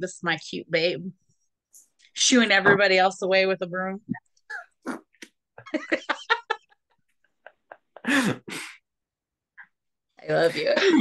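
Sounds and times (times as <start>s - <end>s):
people laughing: 5.6s - 8.4s.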